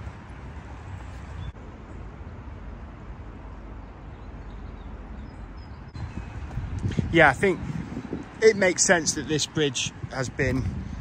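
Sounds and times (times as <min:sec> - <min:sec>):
wind rumble on microphone: 0:05.7 - 0:11.0.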